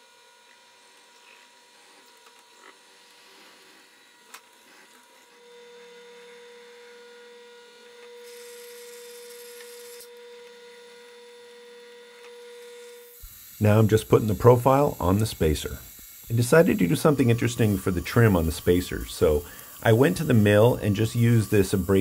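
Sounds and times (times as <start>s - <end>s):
drill press humming: 2.1s - 22.0s
drill bit hissing into wood: 8.2s - 10.1s, 12.7s - 22.0s.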